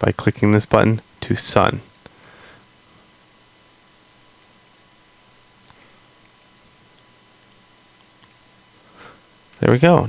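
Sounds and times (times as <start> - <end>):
electrical hum: 0.0 - 10.0
computer mouse clicks: 4.4 - 4.8, 5.6 - 8.4.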